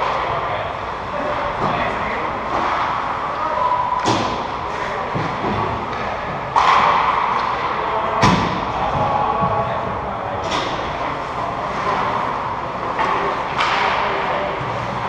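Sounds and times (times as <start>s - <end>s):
skating and play noise: 0.0s - 15.0s
hockey sticks and puck knocking: 4.0s - 9.6s, 12.9s - 14.4s.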